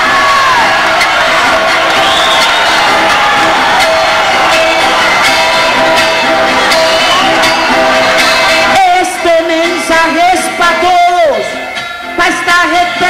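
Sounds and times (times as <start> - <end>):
music with sharp strokes: 0.0 - 10.7
crowd din: 0.0 - 13.0
man singing: 8.7 - 11.6.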